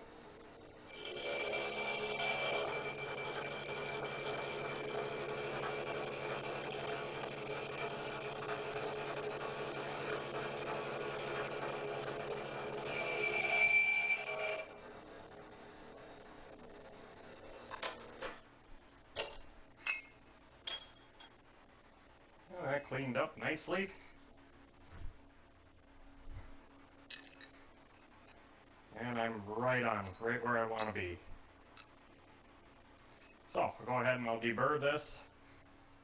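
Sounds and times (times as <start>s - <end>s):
milling machine cutting metal: 0.9s - 15.4s.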